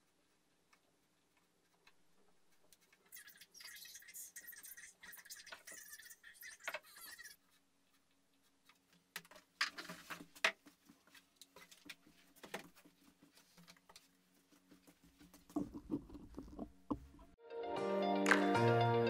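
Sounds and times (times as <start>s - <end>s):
wooden arm knocking and clunking: 15.1s - 17.4s.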